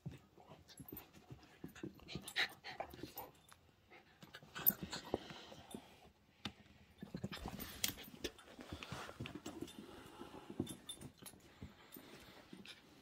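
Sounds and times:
dogs play-growling: 0:04.2 - 0:05.6.

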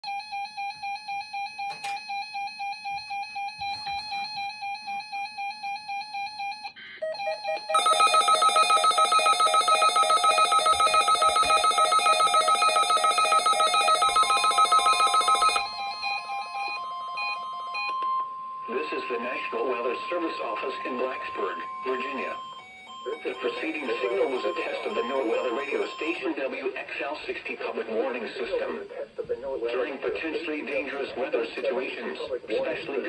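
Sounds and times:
electronic alert beeps: 0:07.0 - 0:26.2
steady high tone: 0:07.7 - 0:26.3.

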